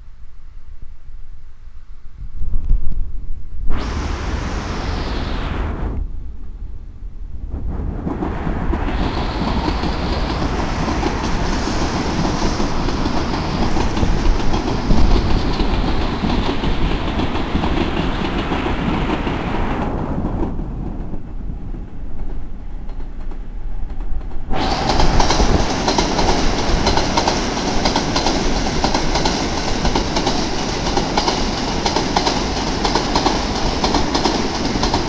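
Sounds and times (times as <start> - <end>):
electric train running past: 3.8 - 6.6, 7.2 - 35.0
wheels clacking over rail joints: 22.3 - 35.0.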